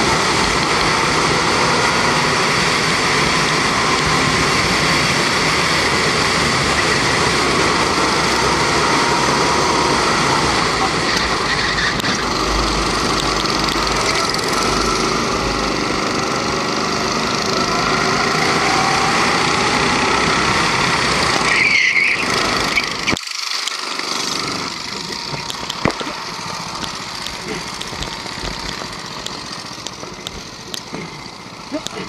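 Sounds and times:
kart engine running: 0.0s - 32.0s
short squeal: 21.4s - 23.2s.

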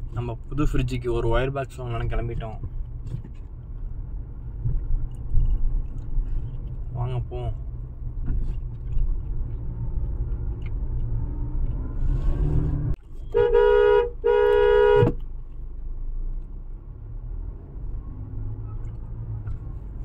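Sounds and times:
car engine and road rumble: 0.0s - 20.0s
car horn honks: 13.2s - 15.2s.

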